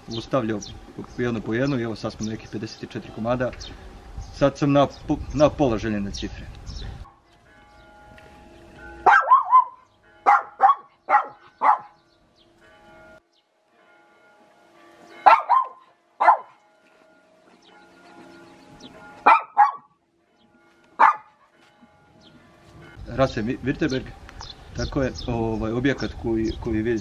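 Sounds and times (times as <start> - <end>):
dog barking: 9.0 - 12.0, 15.2 - 16.6, 19.2 - 19.9, 21.0 - 21.5.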